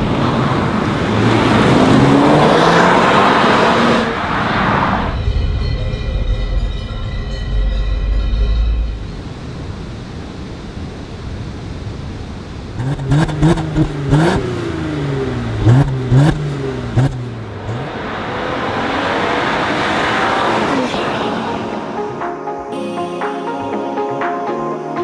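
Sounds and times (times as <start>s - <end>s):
car engine revving: 0.0s - 5.2s, 12.8s - 22.2s
sharp cracks at gear changes: 12.8s - 18.3s.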